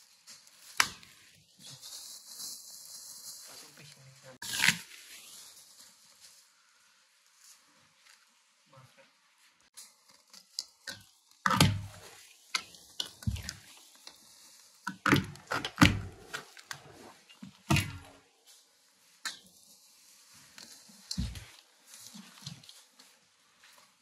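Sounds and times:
packing material rustling and tearing: 0.0s - 8.5s.

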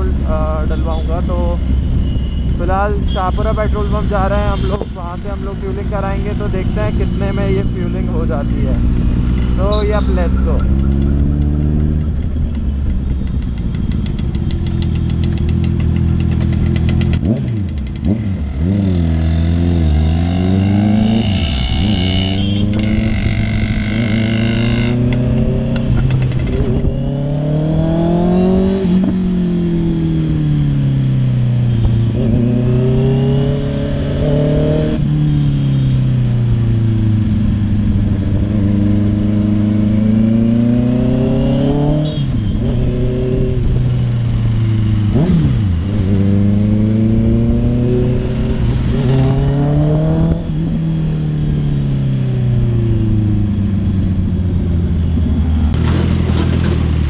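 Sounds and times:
motorcycle engine accelerating: 3.6s - 57.0s.

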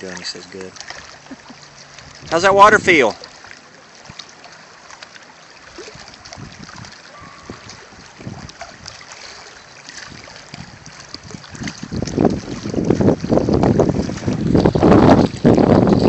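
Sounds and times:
waves lapping on rocks: 0.0s - 16.0s
wind on microphone: 2.0s - 2.9s, 5.8s - 16.0s.

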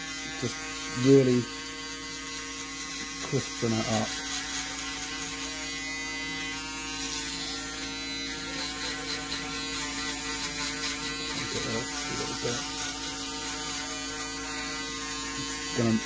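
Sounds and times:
electric shaver buzzing: 0.0s - 16.0s.

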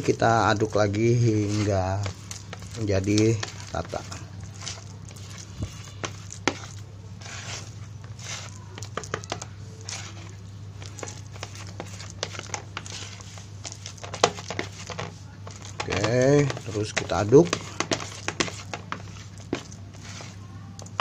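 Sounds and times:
spatula scraping plastic bowl: 0.0s - 21.0s.

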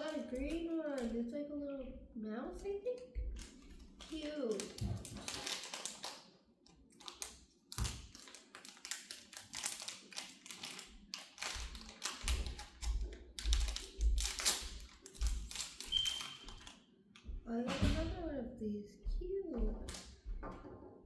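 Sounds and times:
foil wrapper crinkling and tearing: 3.3s - 16.8s.

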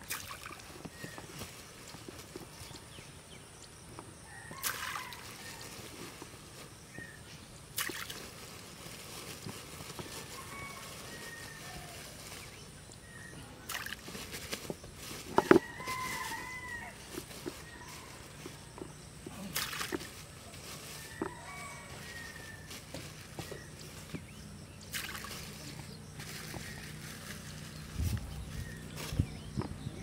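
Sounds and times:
bait splashing into water: 0.0s - 0.6s, 4.6s - 5.1s, 7.8s - 8.2s, 13.6s - 14.0s, 19.5s - 20.0s, 24.9s - 25.4s
plastic bag rustling: 8.0s - 12.8s, 13.7s - 29.5s.

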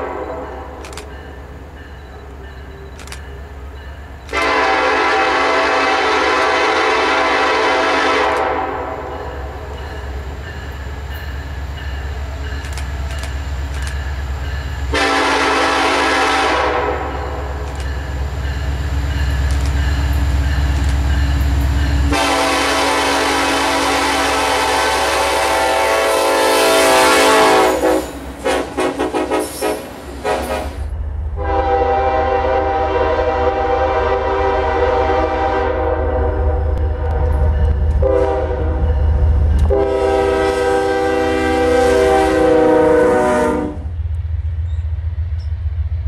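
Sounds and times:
train air horn blasts: 0.0s - 1.0s, 4.3s - 9.8s, 14.9s - 17.6s, 22.0s - 39.0s, 39.6s - 44.0s.

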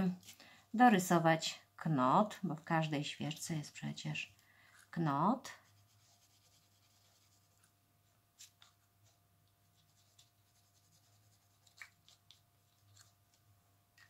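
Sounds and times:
marker scratching on paper: 5.4s - 7.7s, 8.4s - 12.4s.

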